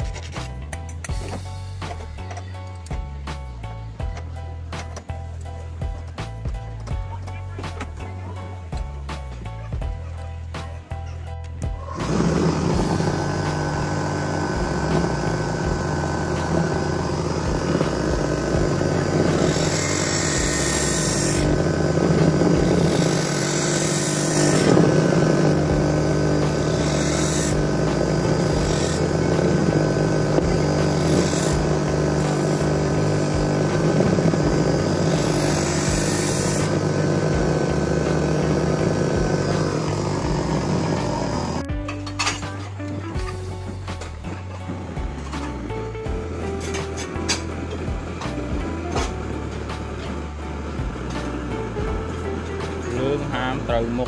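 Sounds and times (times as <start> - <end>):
power tool motor humming: 11.7 - 41.7, 43.8 - 54.0.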